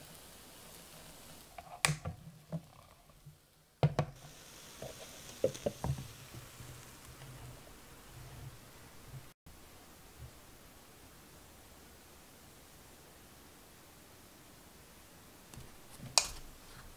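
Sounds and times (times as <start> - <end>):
plastic lid knocks and taps: 3.8 - 4.2.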